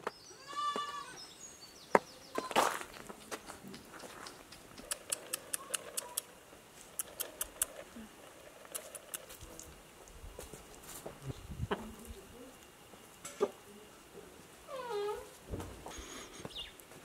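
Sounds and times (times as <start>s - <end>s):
chickens pecking on ground: 2.0s - 14.5s.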